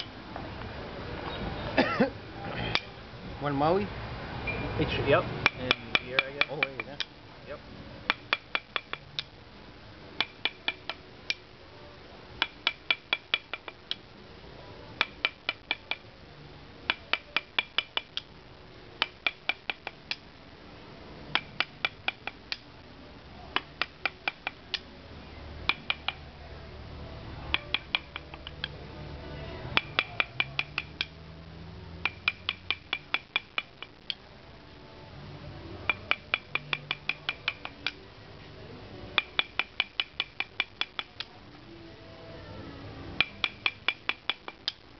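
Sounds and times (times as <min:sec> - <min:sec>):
mallet tapping chisel into wood: 0:05.4 - 0:07.1, 0:08.1 - 0:09.3, 0:10.2 - 0:11.0, 0:12.4 - 0:13.8, 0:15.0 - 0:16.0, 0:16.9 - 0:18.2, 0:19.0 - 0:20.0, 0:21.4 - 0:22.4, 0:23.6 - 0:24.8, 0:25.7 - 0:26.2, 0:27.5 - 0:28.8, 0:29.8 - 0:31.2, 0:32.0 - 0:33.9, 0:35.9 - 0:38.0, 0:39.2 - 0:41.2, 0:43.2 - 0:44.8.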